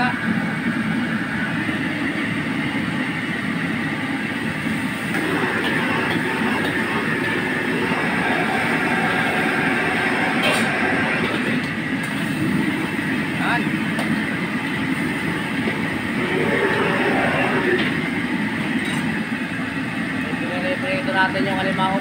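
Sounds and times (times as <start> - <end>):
oil sizzling and bubbling: 4.3 - 19.3.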